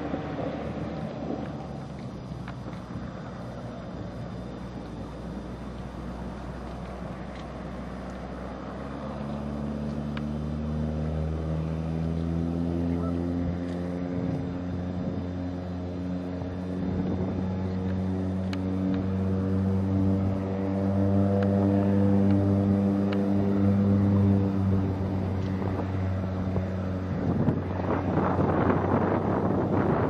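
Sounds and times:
floatplane engine and propeller: 0.0 - 30.0
wind hiss: 23.7 - 30.0.

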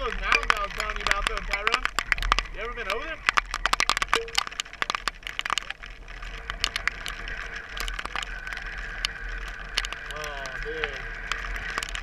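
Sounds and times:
dirt bikes idling: 0.0 - 12.0
clicks and taps on camera: 0.2 - 5.8.

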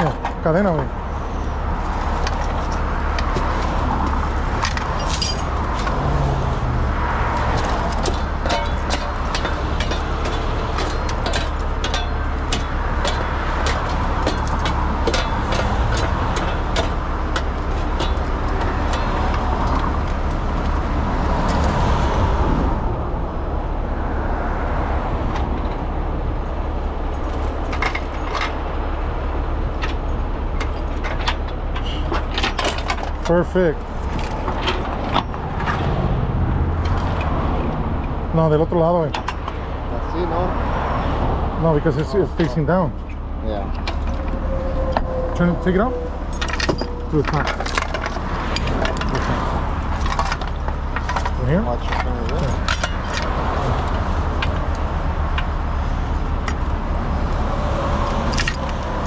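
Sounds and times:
diesel truck engine running: 0.0 - 59.0
metal chain clinking and rattling: 4.0 - 6.2, 7.3 - 20.8, 26.4 - 28.9, 29.7 - 36.1, 36.7 - 37.7, 42.0 - 54.6, 58.0 - 59.0.

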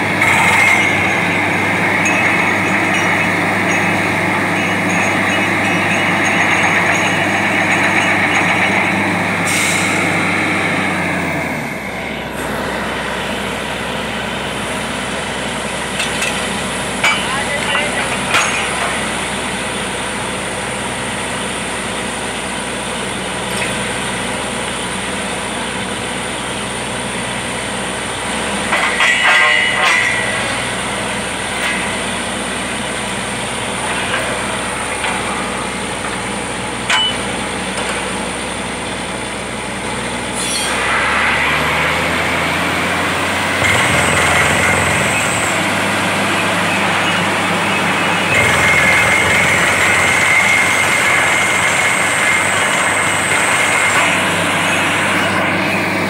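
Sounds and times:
drilling rig running: 0.0 - 56.0
metal clanking of drill rods: 0.2 - 10.1, 16.0 - 19.3, 28.4 - 38.2, 46.6 - 55.7.

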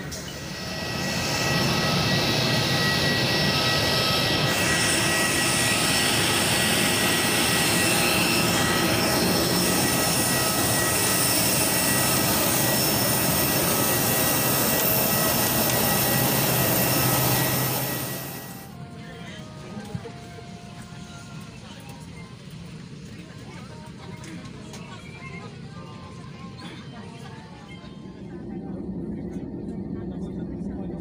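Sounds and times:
jet turbine running: 0.0 - 18.8, 27.2 - 31.0.

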